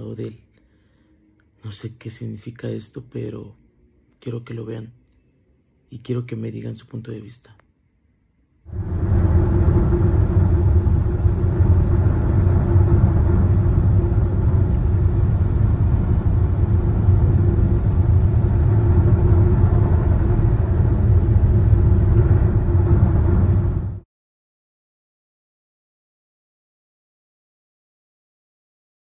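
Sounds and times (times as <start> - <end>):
faint steady hum: 0.0 - 24.0
car road and engine rumble: 8.7 - 24.0.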